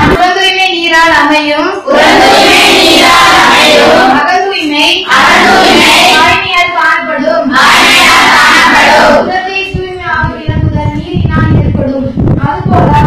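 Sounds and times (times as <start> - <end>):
girls singing together: 1.8 - 4.4, 5.0 - 9.8.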